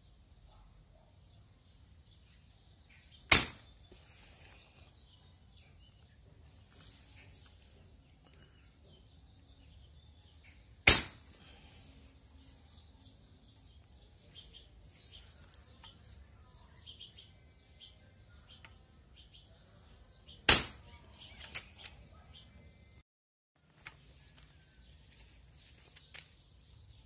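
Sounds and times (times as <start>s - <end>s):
air rifle shot crack: 3.3s - 3.7s, 20.5s - 20.8s.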